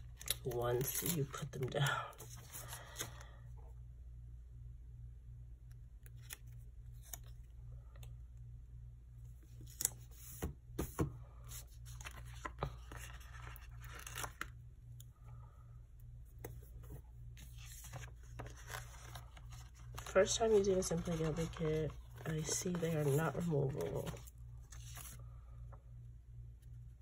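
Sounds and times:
stickers rustling and peeling: 17.4s - 25.2s.

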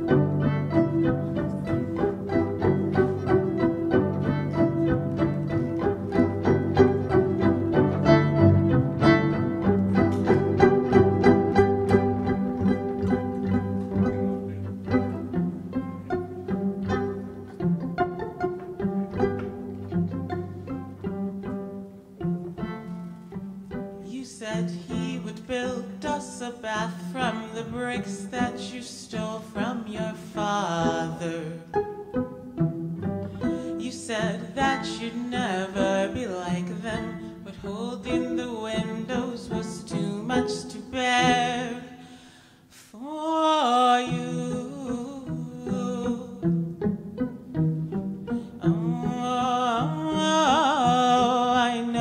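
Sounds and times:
sustained low string tones: 0.0s - 42.1s, 43.7s - 52.0s
plucked violin: 0.0s - 42.4s, 43.0s - 52.0s
person singing with vibrato: 24.0s - 31.8s, 33.4s - 46.6s, 48.5s - 52.0s.

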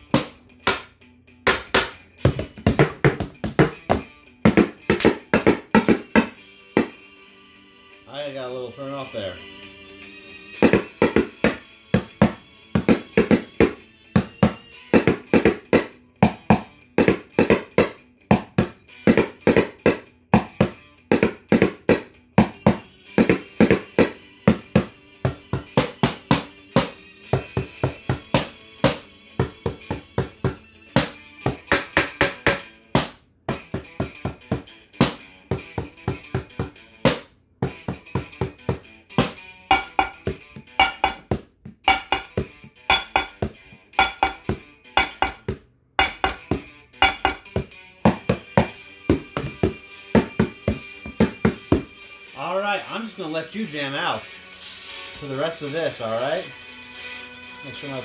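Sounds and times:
backing music track: 0.0s - 58.0s
ladle drumming on bowls and pot: 39.2s - 51.6s.

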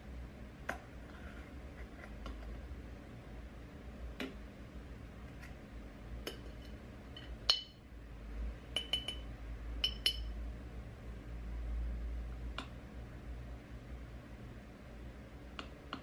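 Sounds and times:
spoon clinking against glass jar: 7.2s - 7.8s, 8.7s - 10.3s.

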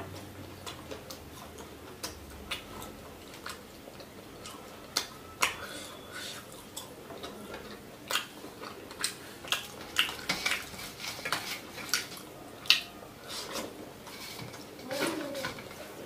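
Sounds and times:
chewing and lip smacks: 0.2s - 5.7s, 6.4s - 12.9s.

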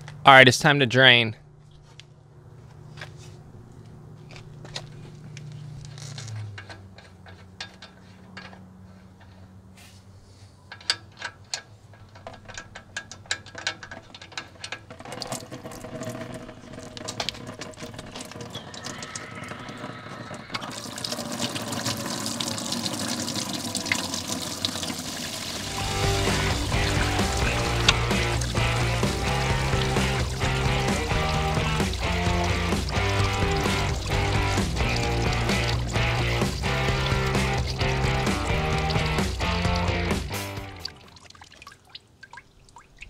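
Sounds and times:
liquid splashing on metal and ground: 10.9s - 18.6s, 20.6s - 43.0s.

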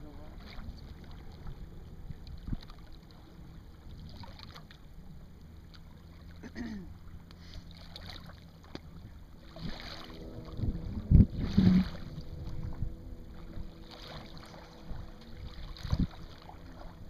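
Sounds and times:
water moving along boat hull: 0.0s - 17.0s
wind on microphone: 1.4s - 2.8s, 8.9s - 17.0s.

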